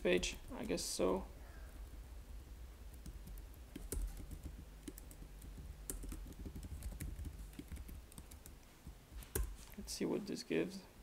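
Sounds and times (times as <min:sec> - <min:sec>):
keyboard typing: 0:02.9 - 0:08.6.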